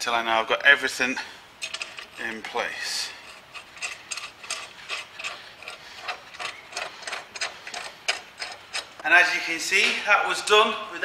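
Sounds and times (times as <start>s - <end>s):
light clicks of nuts and washers: 1.6s - 9.1s.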